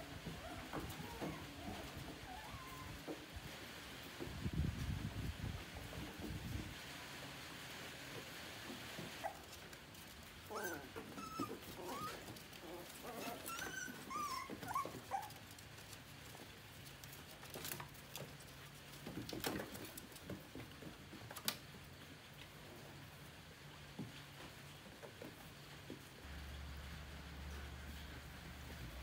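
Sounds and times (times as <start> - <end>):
young animal whimpering: 0.3 - 3.1, 10.5 - 15.4.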